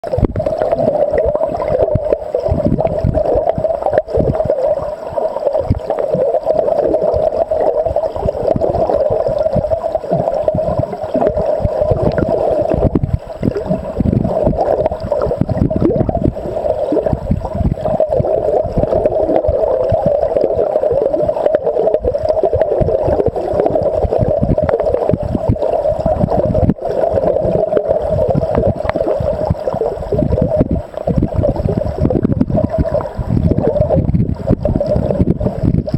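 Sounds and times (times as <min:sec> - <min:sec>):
muffled underwater river rushing: 0:00.0 - 0:35.9.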